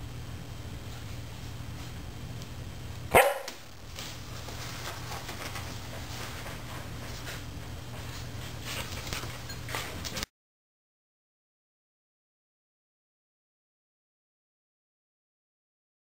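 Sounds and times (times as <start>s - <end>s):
dog barking: 3.1s - 3.6s.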